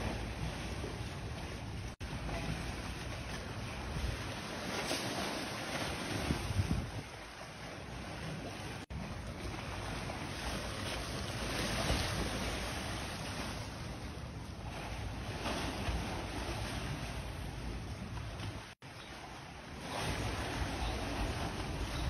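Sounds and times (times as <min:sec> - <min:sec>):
water churning and splashing: 0:00.0 - 0:22.0.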